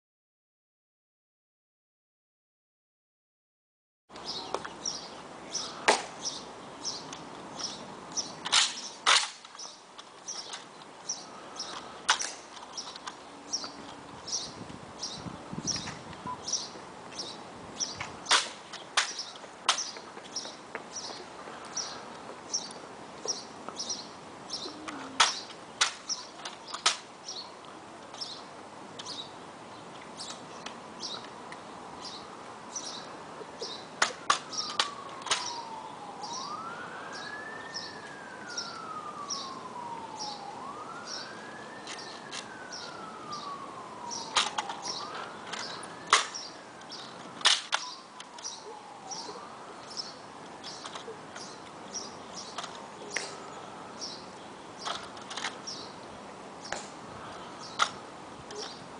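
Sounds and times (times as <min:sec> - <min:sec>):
sharp cracks: 0:05.7 - 0:06.2, 0:08.4 - 0:10.7, 0:11.6 - 0:13.2, 0:18.0 - 0:20.1, 0:24.9 - 0:27.2, 0:34.0 - 0:35.6, 0:44.1 - 0:46.5, 0:47.4 - 0:48.5, 0:56.7 - 0:57.0
siren wailing: 0:34.1 - 0:51.2.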